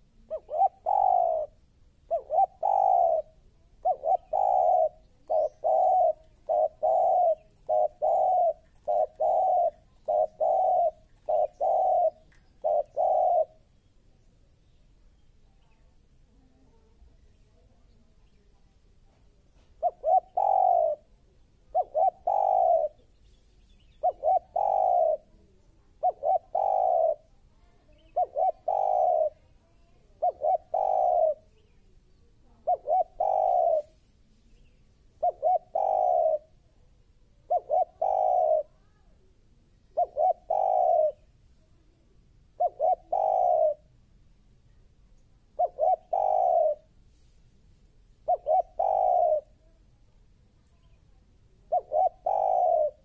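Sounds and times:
dove cooing: 0:00.0 - 0:13.7, 0:19.6 - 0:23.1, 0:23.9 - 0:31.6, 0:32.5 - 0:34.0, 0:35.1 - 0:36.6, 0:37.4 - 0:39.0, 0:39.8 - 0:41.3, 0:42.5 - 0:43.9, 0:45.4 - 0:47.0, 0:48.2 - 0:49.7, 0:51.5 - 0:53.0.

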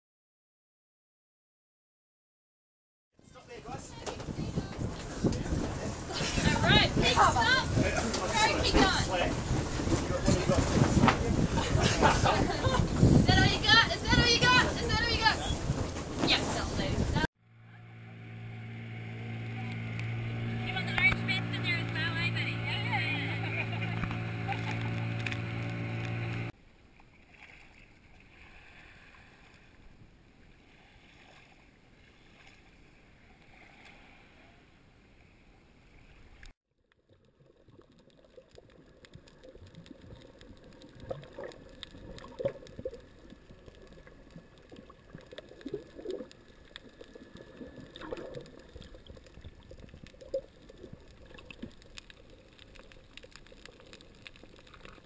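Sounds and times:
muffled underwater water sound: 0:03.9 - 0:55.0
underwater gurgles and bubbling pops: 0:37.0 - 0:55.0.

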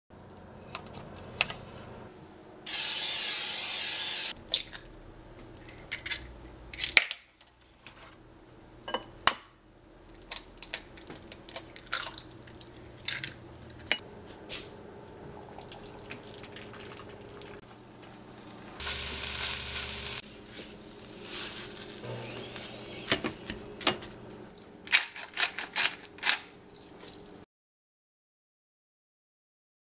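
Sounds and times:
eggs hissing in frying pan: 0:18.8 - 0:23.6.

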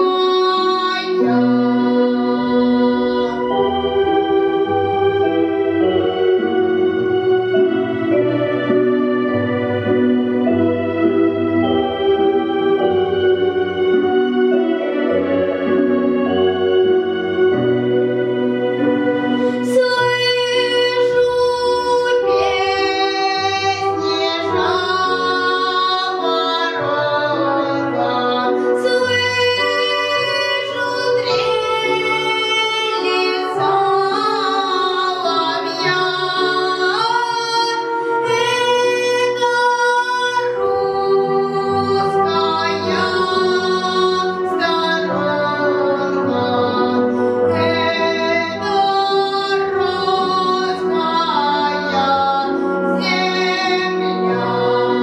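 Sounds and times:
boy singing folk song: 0:00.0 - 0:03.9, 0:19.4 - 0:55.0
instrumental accompaniment: 0:00.0 - 0:55.0.

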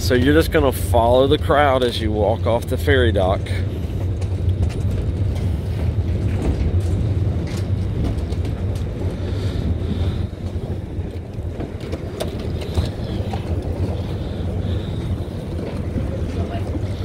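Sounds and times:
low rumble: 0:00.0 - 0:17.0
suitcase wheels clicking: 0:02.7 - 0:17.0.

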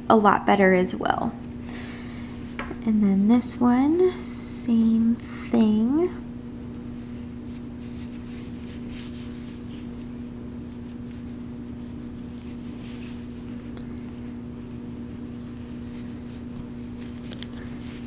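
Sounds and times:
yarn rustling: 0:07.0 - 0:18.0.

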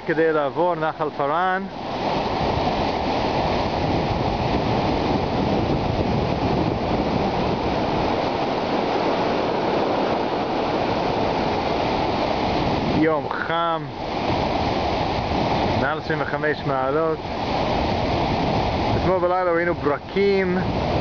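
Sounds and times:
floodwater rushing: 0:00.0 - 0:21.0.

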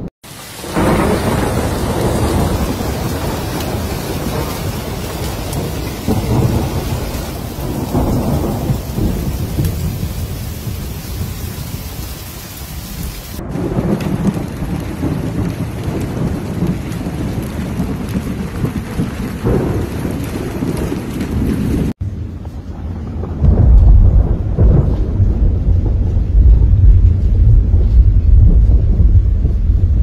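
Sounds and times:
steady rain: 0:00.0 - 0:30.0
thunder rumbling: 0:00.0 - 0:30.0.

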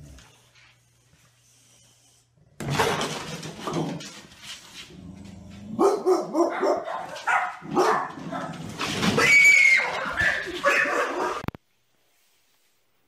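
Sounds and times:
dog barking: 0:05.8 - 0:08.6, 0:09.8 - 0:11.5.

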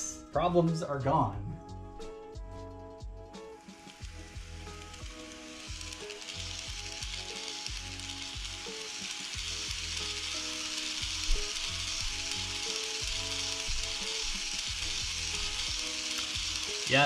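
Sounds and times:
model train wheels hissing on rails: 0:03.6 - 0:17.0.

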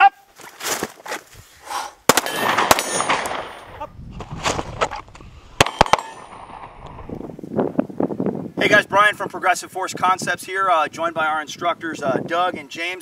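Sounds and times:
pistol shots: 0:02.1 - 0:03.7, 0:05.6 - 0:06.8
steel targets ringing: 0:05.6 - 0:06.6.

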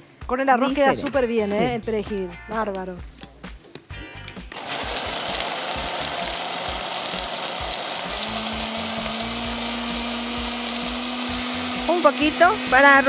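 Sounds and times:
blender running: 0:04.5 - 0:13.0.

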